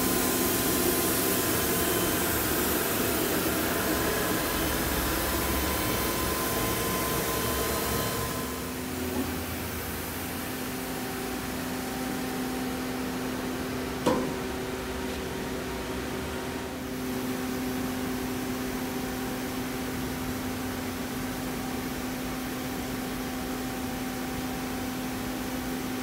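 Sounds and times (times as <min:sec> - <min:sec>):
lathe machine hum: 0:00.0 - 0:13.7.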